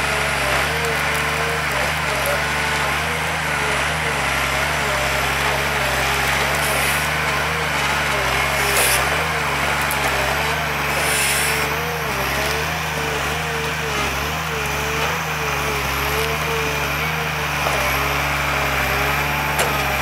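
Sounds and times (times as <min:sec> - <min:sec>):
diesel engine running under load: 0:00.0 - 0:20.0
hydraulic whine: 0:00.0 - 0:20.0
brief hiss: 0:11.0 - 0:11.5.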